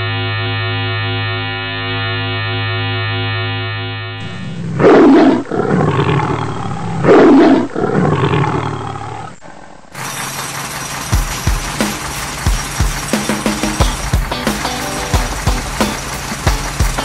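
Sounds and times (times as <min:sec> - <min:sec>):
lion roaring: 0:04.2 - 0:10.0.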